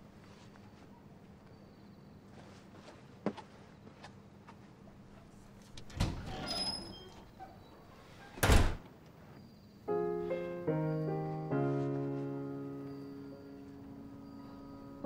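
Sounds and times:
soft piano chords: 0:09.7 - 0:15.0.

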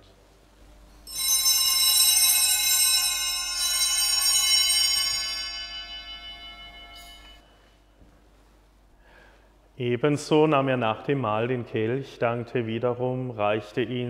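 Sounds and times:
small bells ringing: 0:01.0 - 0:07.7.

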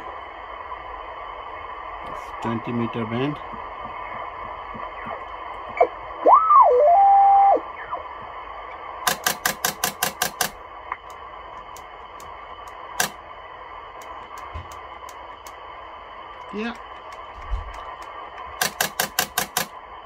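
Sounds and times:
radio band hiss: 0:00.0 - 0:20.0
radio tuning clicks: 0:02.0 - 0:20.0
swooping radio whistle: 0:05.8 - 0:08.2.

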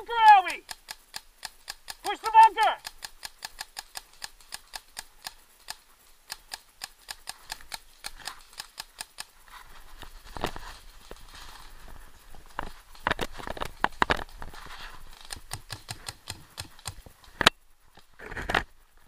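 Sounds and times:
rustling of ferns and brush: 0:00.0 - 0:19.0
paintball marker firing: 0:15.2 - 0:17.0.

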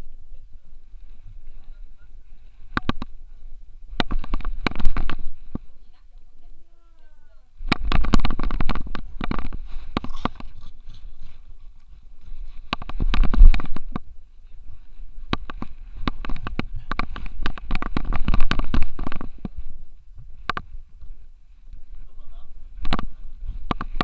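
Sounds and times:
camera clicking and knocking on harness: 0:02.7 - 0:03.2, 0:04.0 - 0:05.6, 0:07.6 - 0:10.8, 0:12.6 - 0:14.1, 0:15.2 - 0:19.6, 0:20.4 - 0:20.7, 0:22.8 - 0:24.0.

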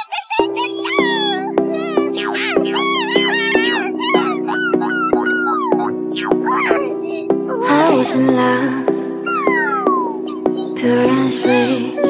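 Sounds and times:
upbeat song with steady beat: 0:07.6 - 0:12.0.

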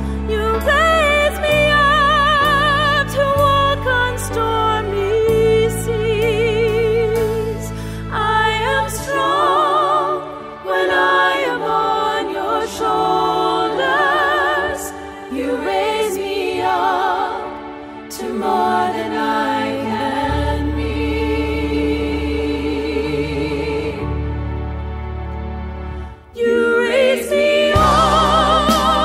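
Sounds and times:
slow background music: 0:00.0 - 0:29.0
voices singing with vibrato: 0:08.2 - 0:24.4, 0:26.3 - 0:29.0.

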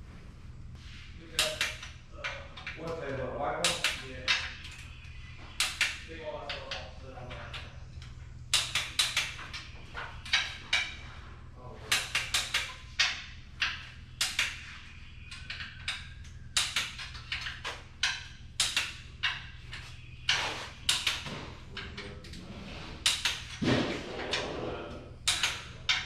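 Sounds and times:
steady low hum: 0:00.0 - 0:26.0
hand tools clinking on metal: 0:01.2 - 0:04.8.

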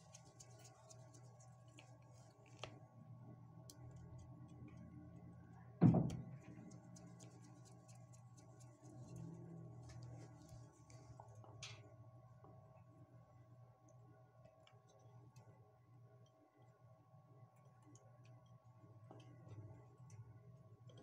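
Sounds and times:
low steady hum: 0:00.0 - 0:21.0
loud knock: 0:05.8 - 0:06.4.

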